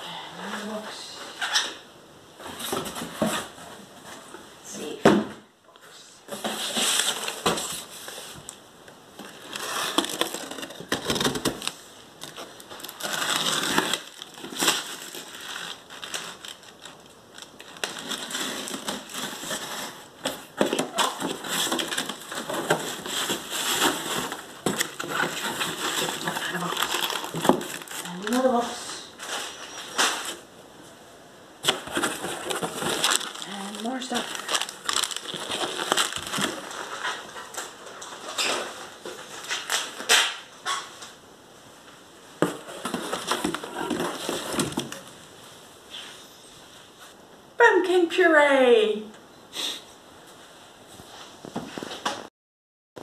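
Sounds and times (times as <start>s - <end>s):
cardboard boxes handled: 2.4s - 4.4s, 9.2s - 17.0s, 17.6s - 28.4s, 31.6s - 37.5s, 42.4s - 45.1s
hands rummaging packing peanuts: 9.2s - 30.4s, 31.6s - 40.1s, 42.4s - 45.1s.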